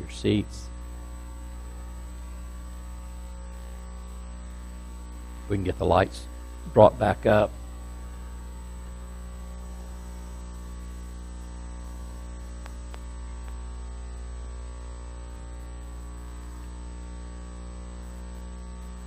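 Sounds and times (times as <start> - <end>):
electrical mains hum: 0.0 - 19.0
light hiss: 8.7 - 13.8
faint clicks: 12.6 - 13.6.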